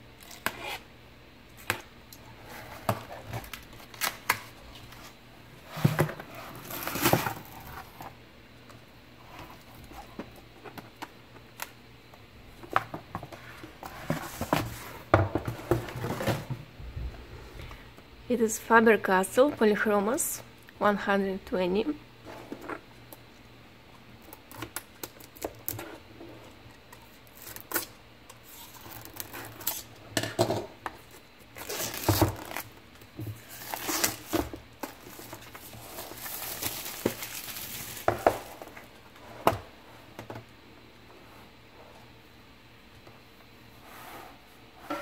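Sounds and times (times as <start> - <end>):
plastic shrink wrap crinkling: 31.5 - 32.8, 33.4 - 38.6.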